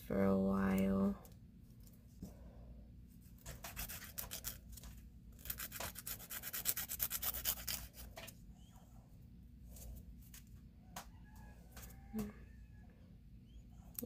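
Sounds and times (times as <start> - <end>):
nail file rubbing fingernail: 3.5 - 4.6, 5.4 - 8.1.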